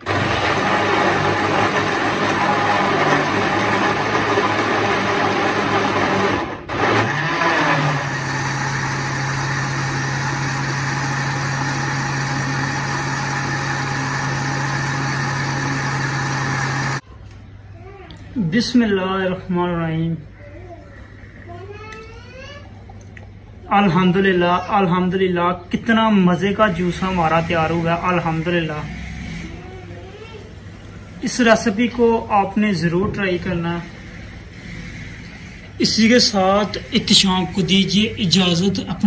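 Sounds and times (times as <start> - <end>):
blender motor running: 0.0 - 17.0, 26.8 - 31.8.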